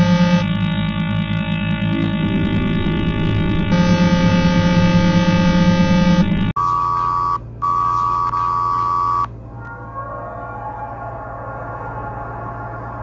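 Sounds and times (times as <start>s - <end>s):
harsh buzzing alarm chord: 0.0s - 9.2s
long steady beeps: 0.0s - 9.3s.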